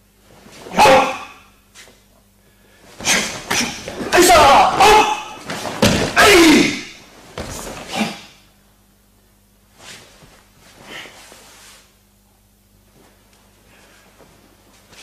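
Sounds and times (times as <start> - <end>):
person shouting: 0.7 - 1.5, 3.1 - 5.4, 6.0 - 7.0
slaps and thuds on mat: 3.0 - 6.7, 7.3 - 8.2.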